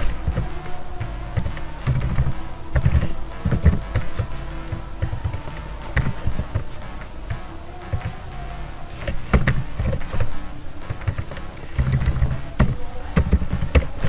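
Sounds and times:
keyboard typing: 0.0 - 14.0.

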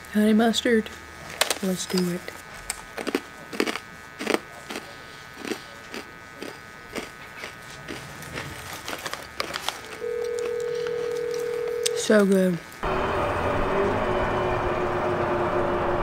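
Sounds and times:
faint electrical hum: 0.0 - 12.8
crunchy snack being chewed: 1.3 - 12.3.

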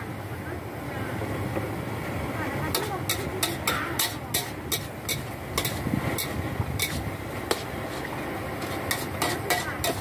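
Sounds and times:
metal spatula scraping wok: 2.7 - 10.0.

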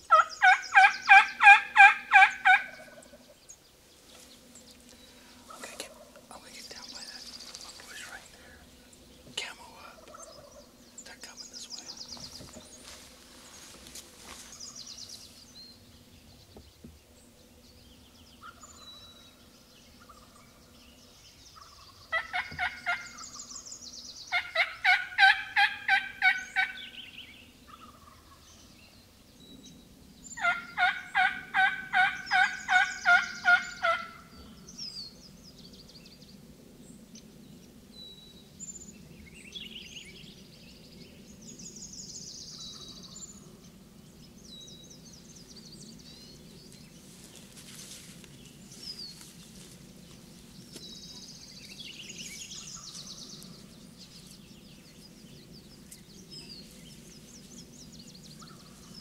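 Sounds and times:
turkey yelping: 0.1 - 3.0, 24.4 - 26.8, 30.4 - 34.2
small birds chirping: 2.3 - 24.9, 26.3 - 59.0.

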